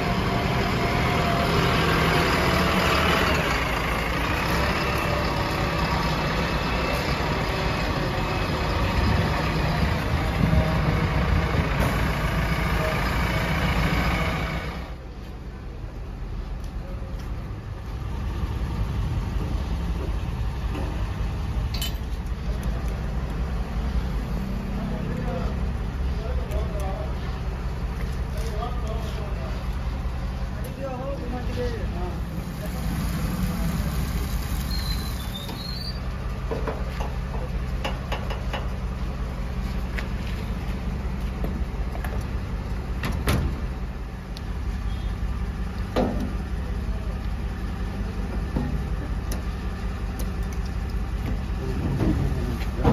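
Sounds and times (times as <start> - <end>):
diesel engine idling: 0.0 - 52.9
metallic clink: 21.7 - 22.1.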